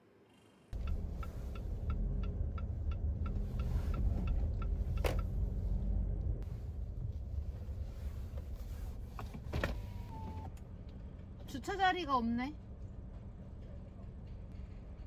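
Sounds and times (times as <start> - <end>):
car engine and road rumble: 0.7 - 15.0
turn signal ticking: 0.8 - 7.3.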